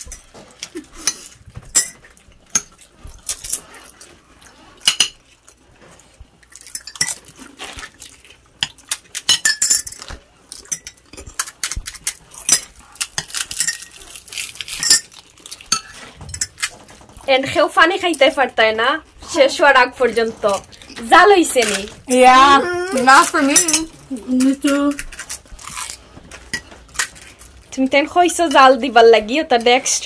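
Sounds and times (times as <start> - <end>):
metal spoons clinking on dishes: 1.0 - 2.7, 8.6 - 11.4, 23.2 - 24.0.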